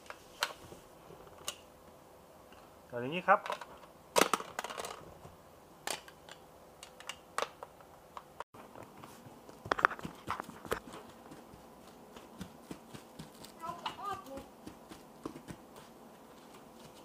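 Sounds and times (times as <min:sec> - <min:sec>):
plastic toy shapes clicking and knocking: 0:03.4 - 0:05.0.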